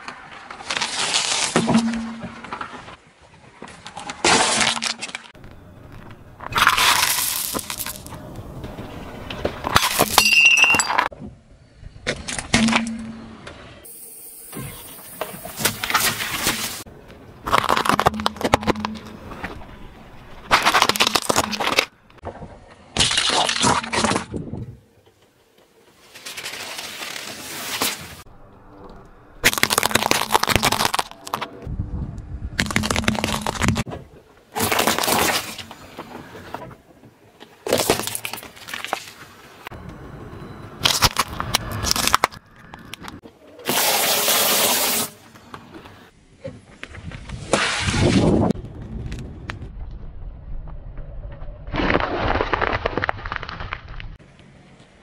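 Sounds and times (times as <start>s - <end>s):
tyre crushing objects crackling: 6.5s - 8.2s, 17.4s - 21.9s, 29.4s - 31.6s, 32.6s - 33.9s, 34.5s - 35.9s, 51.7s - 54.2s.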